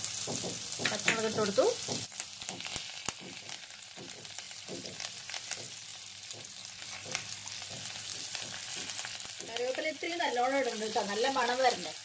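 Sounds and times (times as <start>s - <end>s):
chillies sizzling in hot oil: 0.0s - 12.0s.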